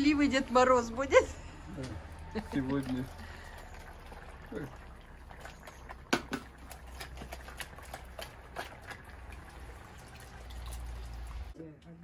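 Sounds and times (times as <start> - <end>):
stew bubbling and popping: 0.4 - 11.6
liquid splashing into pan: 2.1 - 11.6.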